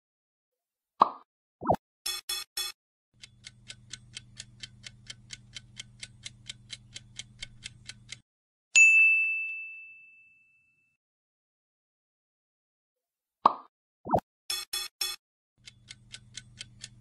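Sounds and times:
bright ding: 0:08.8 - 0:11.0.

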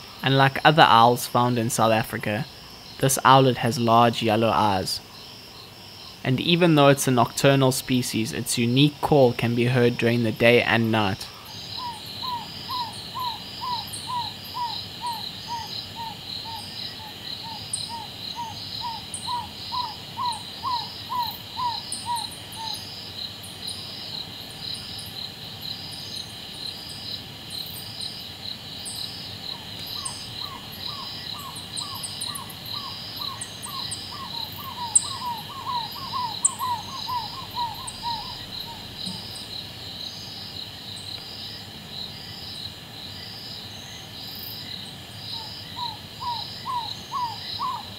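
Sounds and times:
crickets and insects chorus: 0:00.0 - 0:47.9
owl hooting: 0:11.3 - 0:22.9, 0:29.5 - 0:39.6, 0:45.3 - 0:47.9.

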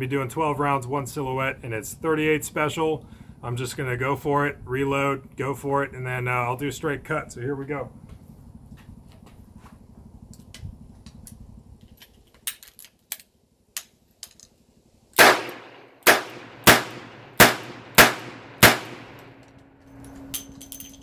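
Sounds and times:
revolver shots with ringing tail: 0:15.2 - 0:19.3.

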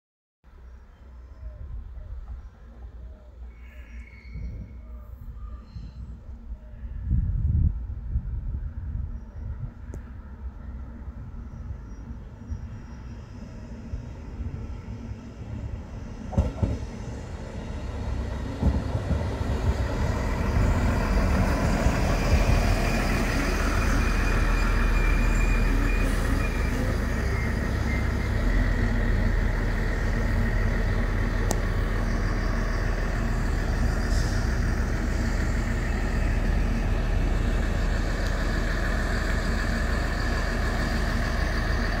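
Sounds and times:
diesel railcar engines rumbling: 0:00.5 - 0:42.0
high engine whine: 0:17.4 - 0:42.0.

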